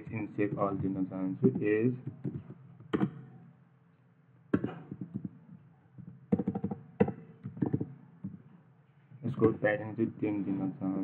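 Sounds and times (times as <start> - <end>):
keyboard typing: 0.0 - 3.4, 6.0 - 8.4
faint steady hum: 0.0 - 11.0.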